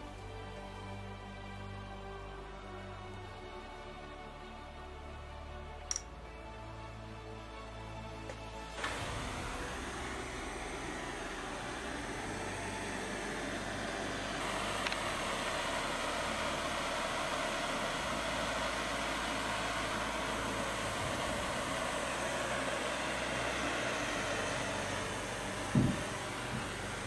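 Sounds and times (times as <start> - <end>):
blowtorch flame hissing: 8.3 - 27.0.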